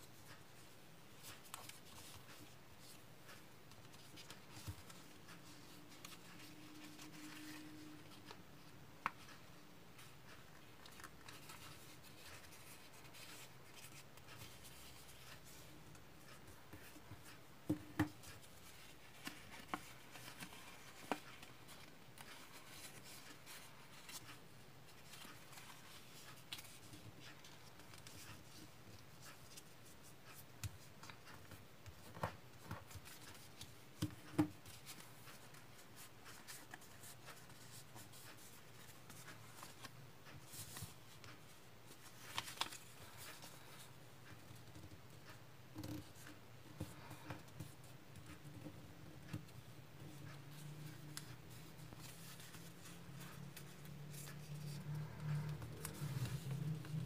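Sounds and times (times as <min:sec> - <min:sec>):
paper rustling and crackling: 0:18.1 - 0:29.6, 0:30.2 - 0:44.5, 0:50.2 - 0:57.0.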